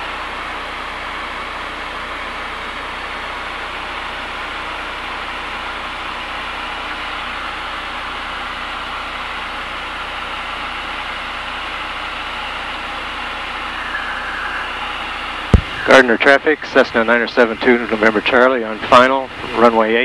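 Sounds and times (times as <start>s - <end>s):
airplane engine and propeller drone: 0.0s - 20.0s
airflow noise: 12.8s - 16.3s.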